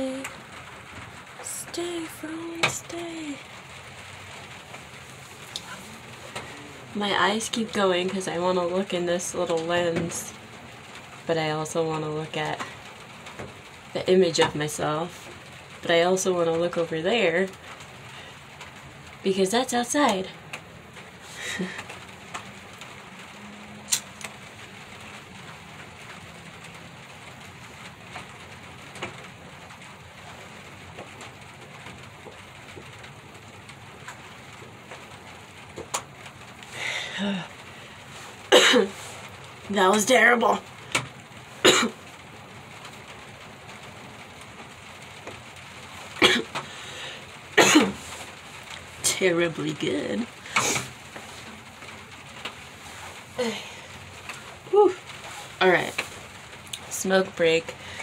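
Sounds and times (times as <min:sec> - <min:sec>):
rain on wooden roof: 0:00.0 - 0:58.0
person coughing: 0:38.5 - 0:39.0, 0:41.6 - 0:42.0, 0:46.2 - 0:46.6, 0:47.6 - 0:48.0.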